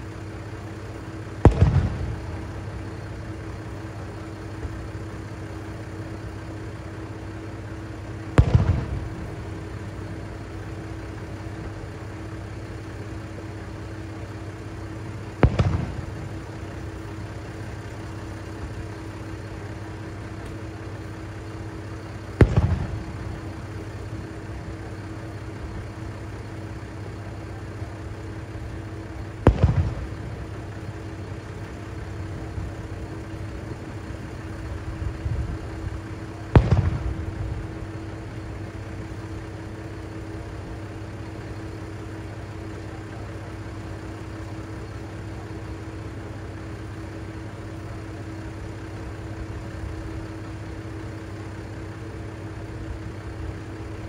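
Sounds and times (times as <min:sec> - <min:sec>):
fireworks bursting with echo: 0:00.0 - 0:43.0
diesel engine idling: 0:00.0 - 0:54.0.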